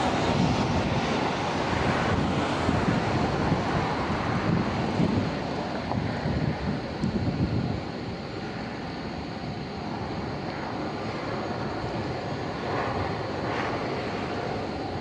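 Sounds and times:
distant airport noise: 0:00.0 - 0:15.0
wind buffeting microphone: 0:00.0 - 0:15.0.

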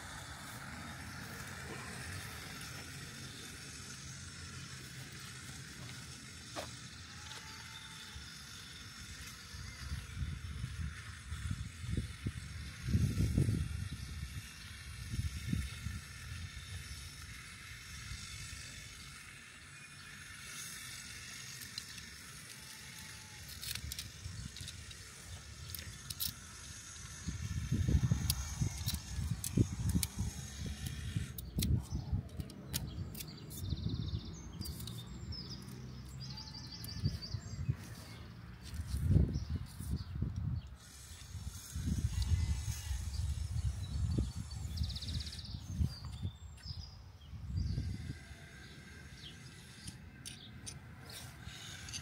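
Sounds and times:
wind rumble on microphone: 0:09.0 - 0:19.0, 0:23.7 - 0:50.0
metal antenna rods clicking: 0:20.0 - 0:33.9, 0:34.5 - 0:43.2, 0:49.1 - 0:52.0.

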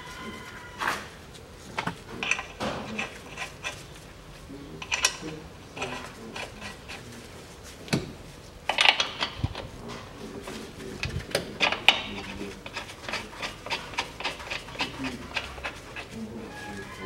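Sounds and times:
metal clinks and knocks: 0:01.8 - 0:03.8, 0:04.8 - 0:06.6, 0:08.7 - 0:09.7.

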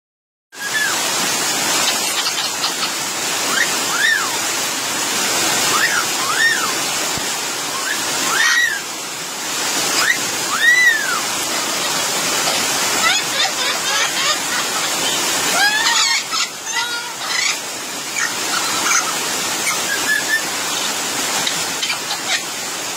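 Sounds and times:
bird whistled calls: 0:00.6 - 0:01.0, 0:03.5 - 0:04.4, 0:05.7 - 0:06.8, 0:10.0 - 0:11.3, 0:18.2 - 0:20.5
heavy rain on foliage: 0:00.6 - 0:22.9.

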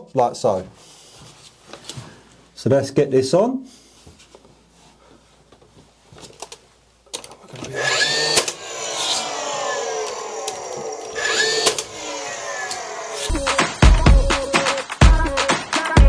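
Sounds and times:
tool motor whirring: 0:07.5 - 0:13.4
nail gun shots: 0:08.0 - 0:08.6, 0:11.2 - 0:11.9.

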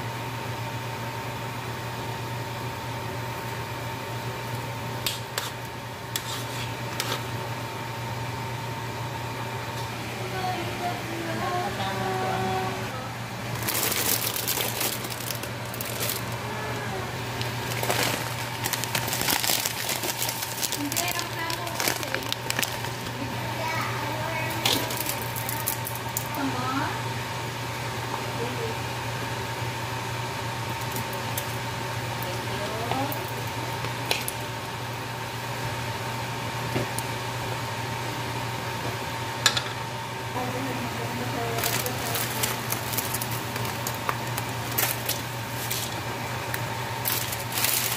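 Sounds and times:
steady low hum: 0:00.0 - 0:47.9
plastic packaging crinkling: 0:13.5 - 0:16.4, 0:17.3 - 0:23.1, 0:24.4 - 0:26.4, 0:41.5 - 0:46.0, 0:47.0 - 0:47.9.

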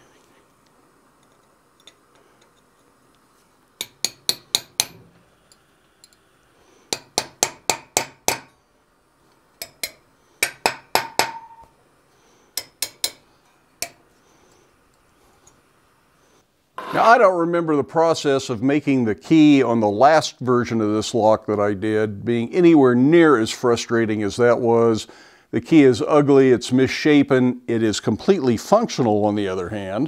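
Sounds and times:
hammer striking steel drift: 0:03.8 - 0:05.1, 0:09.6 - 0:11.7.

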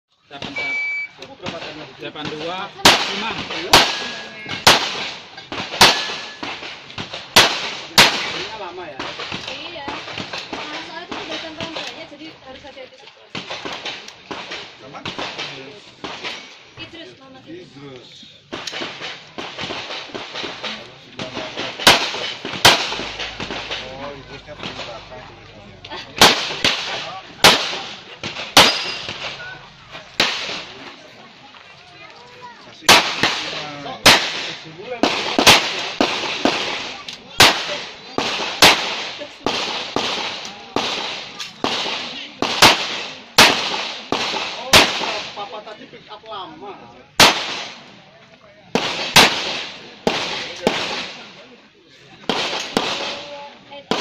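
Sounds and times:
faint sharp reports: 0:00.3 - 0:01.7
loud pistol shots: 0:02.2 - 0:11.3, 0:18.6 - 0:25.0, 0:26.2 - 0:29.5, 0:32.9 - 0:45.4, 0:47.2 - 0:47.8, 0:48.8 - 0:51.2, 0:52.2 - 0:53.3.

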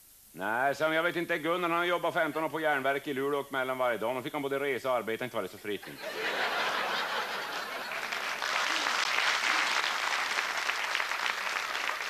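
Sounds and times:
studio audience applauding: 0:07.0 - 0:12.0.

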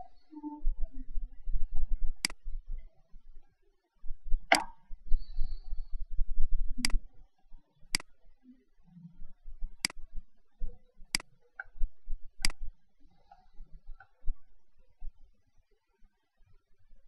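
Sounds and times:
computer mouse clicking: 0:02.2 - 0:02.4, 0:04.5 - 0:04.8, 0:06.8 - 0:07.0, 0:09.8 - 0:10.0, 0:12.4 - 0:12.7.

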